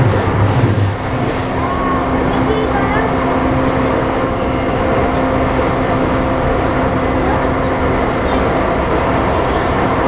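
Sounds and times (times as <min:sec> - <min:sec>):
electric traction hum: 0:00.0 - 0:10.0
train wheels rumbling on track: 0:00.0 - 0:10.0.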